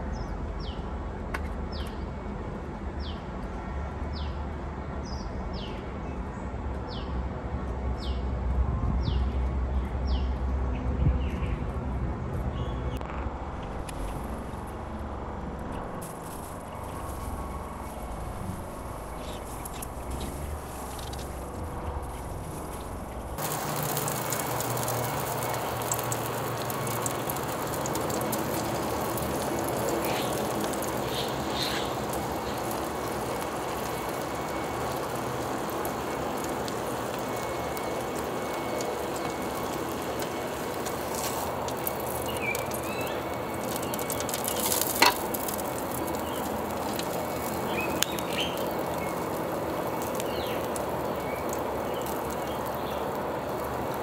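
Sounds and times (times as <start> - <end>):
meat sizzling on grill: 14.0 - 54.0
bird chirps: 31.0 - 32.6, 47.6 - 49.2.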